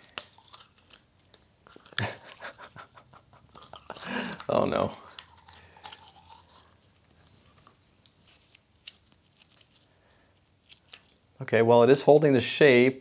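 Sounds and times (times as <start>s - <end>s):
putty crackling and squishing: 0.0s - 2.2s, 3.5s - 11.4s.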